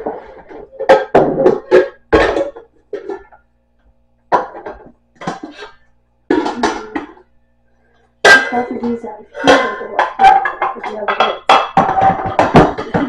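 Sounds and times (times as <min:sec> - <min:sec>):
steel pot clanking and scraping: 0:08.2 - 0:13.0.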